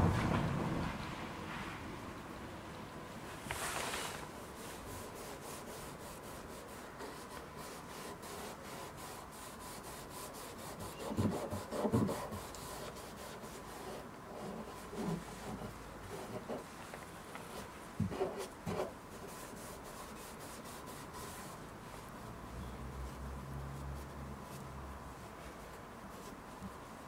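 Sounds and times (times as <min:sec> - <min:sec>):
cotton pad scrubbing plastic: 0:03.5 - 0:27.0.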